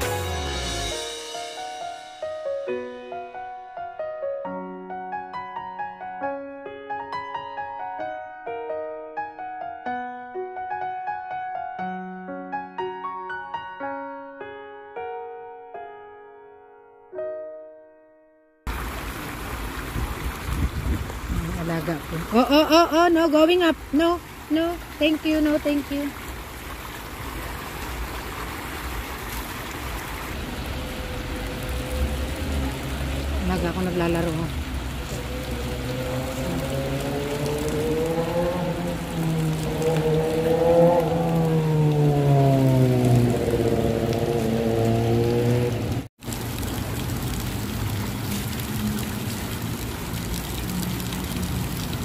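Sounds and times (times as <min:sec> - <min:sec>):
fountain water splashing: 0:18.7 - 0:52.0.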